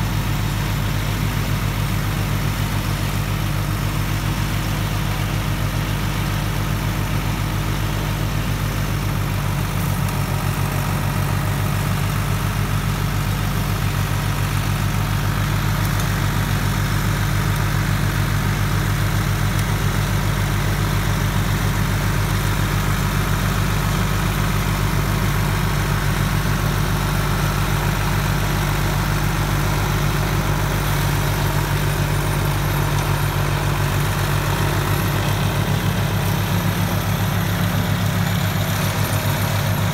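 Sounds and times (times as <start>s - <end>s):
rotary tiller in dry soil: 0.0s - 39.9s
tractor diesel engine under load: 0.0s - 39.9s.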